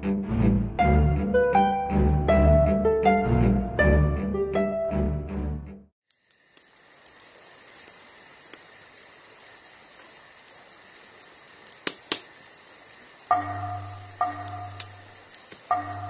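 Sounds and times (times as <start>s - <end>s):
crickets chirring: 6.1s - 16.0s
wood fire crackling: 6.1s - 16.0s.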